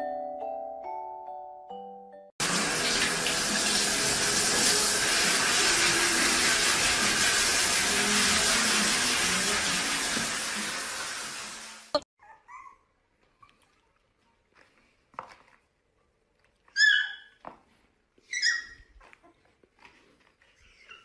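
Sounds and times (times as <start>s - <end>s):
puppy yelping: 12.2s - 12.9s, 16.7s - 17.4s, 18.3s - 19.4s, 20.6s - 21.0s
puppy whimpering: 12.2s - 13.5s, 16.8s - 17.4s, 18.3s - 19.5s, 20.4s - 21.0s.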